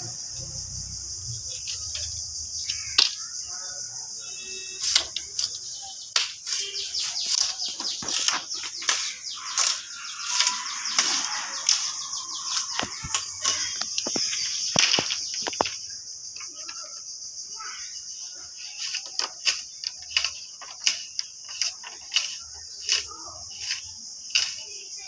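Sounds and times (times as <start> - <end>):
bamboo strips clattering: 0.0 - 3.4, 4.7 - 17.0, 18.6 - 24.8
crickets droning: 0.0 - 25.0
blade chopping bamboo: 18.8 - 24.7.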